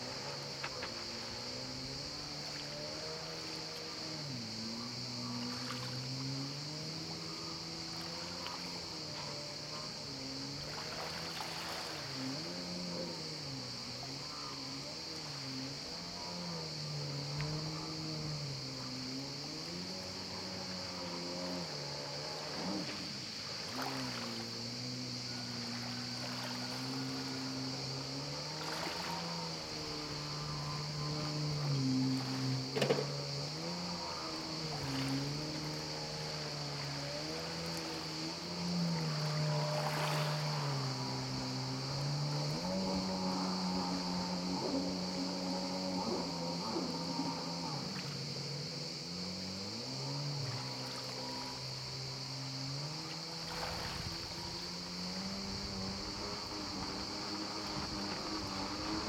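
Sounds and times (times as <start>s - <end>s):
jet ski engine revving: 0.0s - 59.0s
water spray splashes: 22.4s - 24.6s.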